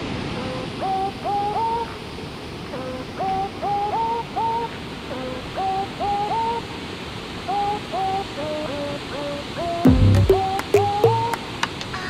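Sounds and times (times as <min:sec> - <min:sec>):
waterfall rushing: 0:04.0 - 0:11.8
short hooting notes: 0:09.8 - 0:11.4.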